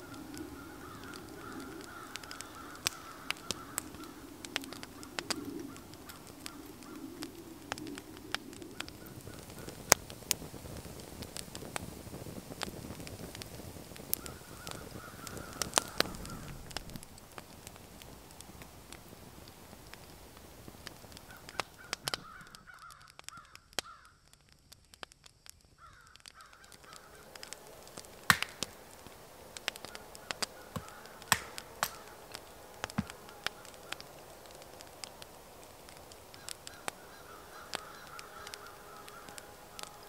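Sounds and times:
bird calling: 0:00.0 - 0:10.0, 0:14.2 - 0:16.7, 0:21.2 - 0:24.1, 0:25.8 - 0:40.0
campfire crackling and popping: 0:00.0 - 0:40.0.

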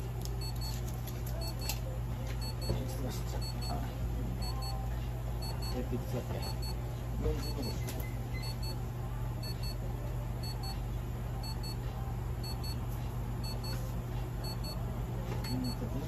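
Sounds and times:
low equipment hum: 0:00.0 - 0:16.0
medical device double beeps: 0:15.4 - 0:15.8.

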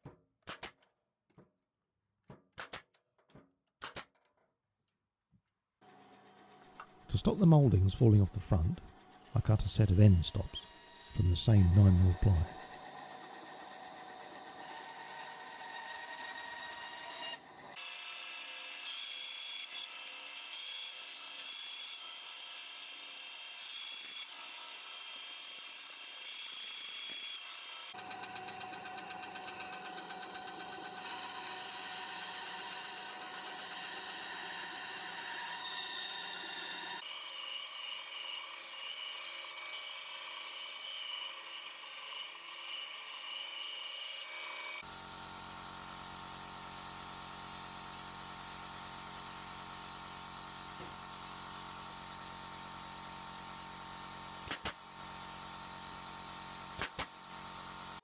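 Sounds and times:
bandsaw cutting plywood: 0:09.4 - 0:45.0.

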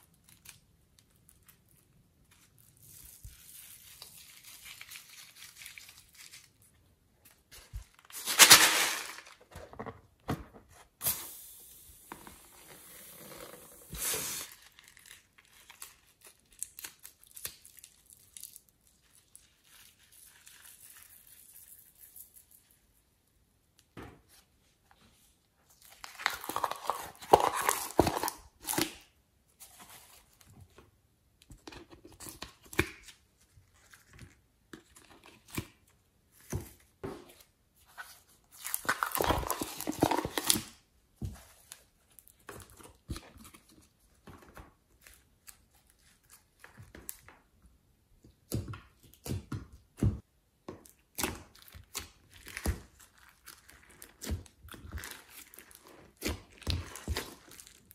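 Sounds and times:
crackly tearing and crinkling: 0:00.0 - 0:09.4, 0:13.7 - 0:22.7, 0:25.7 - 0:29.1, 0:50.9 - 0:57.9.

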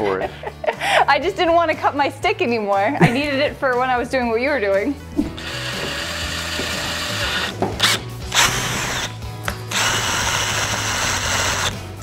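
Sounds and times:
cordless drill spinning: 0:05.4 - 0:11.8.

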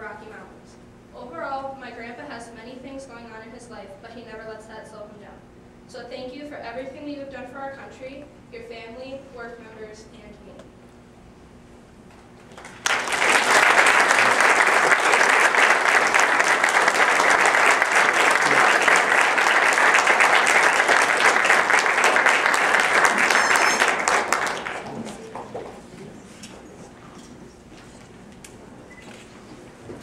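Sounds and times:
audience applauding: 0:12.5 - 0:25.8.

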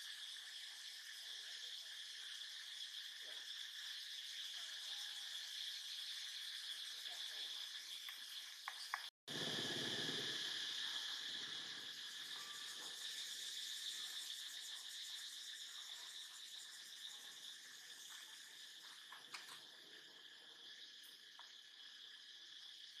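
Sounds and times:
high-pitched insect chorus: 0:00.0 - 0:23.0.

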